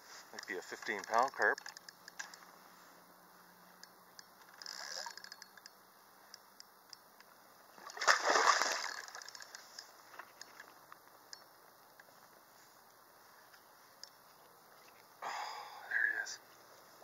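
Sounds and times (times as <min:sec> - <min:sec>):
fish splashing: 0:07.8 - 0:09.4.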